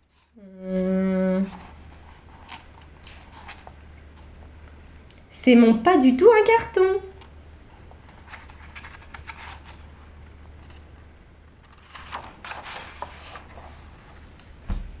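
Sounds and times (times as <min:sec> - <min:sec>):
low steady hum: 0:00.0 - 0:15.0
paper pages rustling: 0:01.4 - 0:04.6, 0:07.8 - 0:09.9, 0:11.6 - 0:14.6
page turning: 0:01.5 - 0:04.4, 0:07.9 - 0:09.9, 0:11.6 - 0:14.6.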